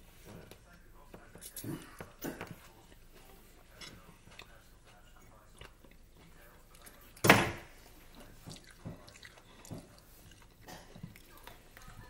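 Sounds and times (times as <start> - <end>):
biting and chewing: 1.4 - 12.0.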